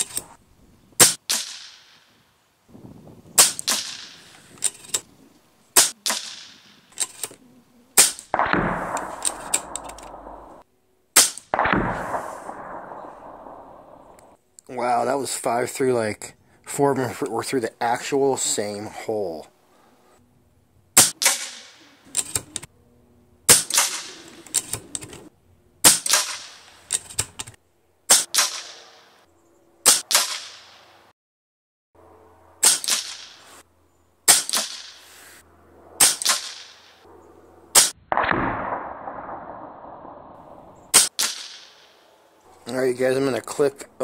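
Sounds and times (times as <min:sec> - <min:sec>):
air rifle shots: 0:01.0 - 0:02.2, 0:03.4 - 0:05.0, 0:05.7 - 0:07.3, 0:08.0 - 0:14.4, 0:21.0 - 0:22.6, 0:23.5 - 0:25.1, 0:25.8 - 0:27.4, 0:28.1 - 0:29.2, 0:29.8 - 0:31.0, 0:32.6 - 0:33.6, 0:34.2 - 0:35.2, 0:36.0 - 0:37.0, 0:37.7 - 0:42.2.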